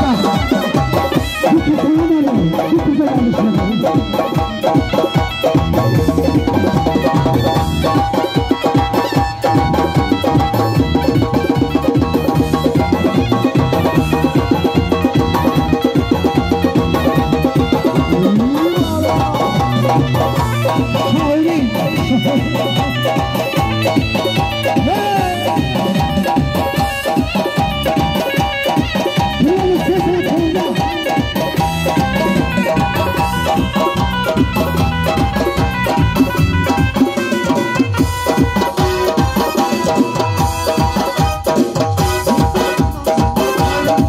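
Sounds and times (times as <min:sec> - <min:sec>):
man singing into a microphone: 0:00.0 - 0:00.8, 0:01.4 - 0:04.3, 0:18.1 - 0:19.6, 0:20.6 - 0:23.2, 0:24.7 - 0:25.8, 0:29.4 - 0:31.2
electronic keyboard melody: 0:00.0 - 0:44.0
frame drum beating: 0:00.0 - 0:44.0
bass part: 0:09.5 - 0:37.0.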